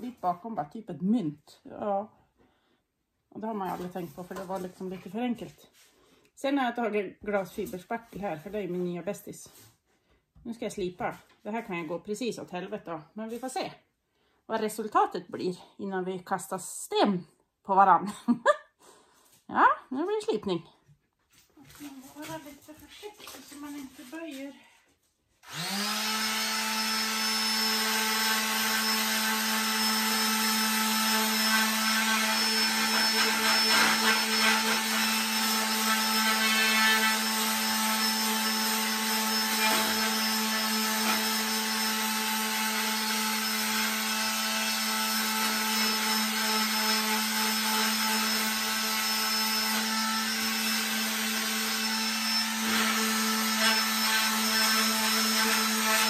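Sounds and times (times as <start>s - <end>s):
electric sander humming: 25.4s - 56.0s.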